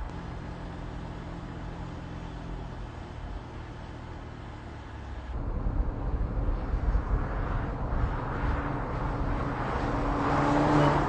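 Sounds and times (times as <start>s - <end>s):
road noise: 0.0s - 11.0s
wind noise: 5.4s - 10.4s.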